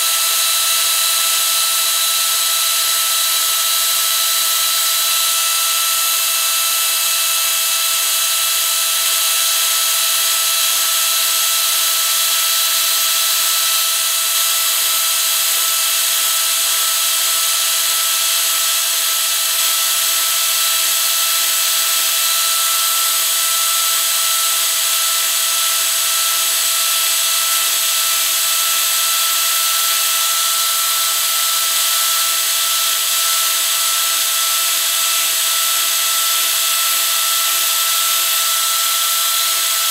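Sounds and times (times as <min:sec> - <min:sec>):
power carver whining: 0:00.0 - 0:39.9.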